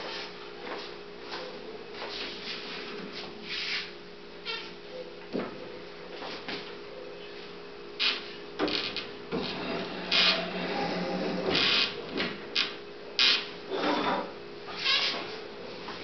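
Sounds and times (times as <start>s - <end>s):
wooden frames scraping on shelves: 8.6s - 12.4s.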